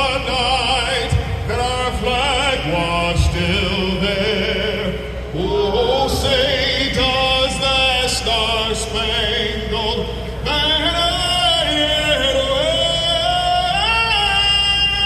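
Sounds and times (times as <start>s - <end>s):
steady low bass line: 0.0s - 15.0s.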